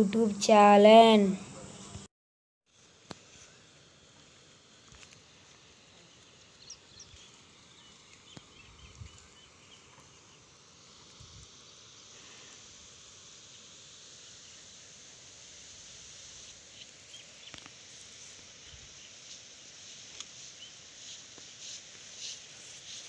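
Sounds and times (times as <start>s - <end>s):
steady high hiss: 0.0s - 2.1s, 2.7s - 23.0s
small birds chirping: 5.9s - 10.5s, 16.4s - 17.8s, 20.4s - 23.0s.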